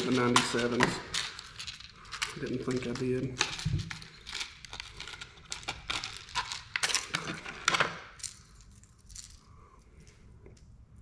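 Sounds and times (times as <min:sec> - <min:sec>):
faint handling noise: 0:00.0 - 0:05.2
plastic packaging crackling: 0:00.0 - 0:09.4.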